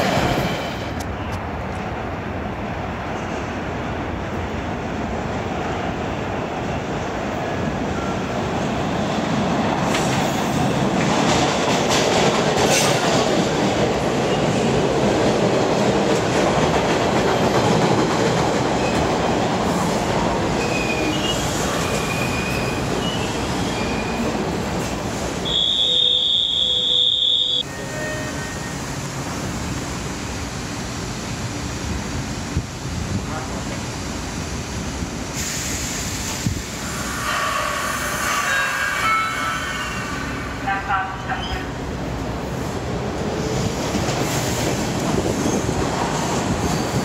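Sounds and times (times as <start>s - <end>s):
subway train rumbling on rails: 0.0s - 47.0s
high wheel squeals: 20.6s - 24.3s.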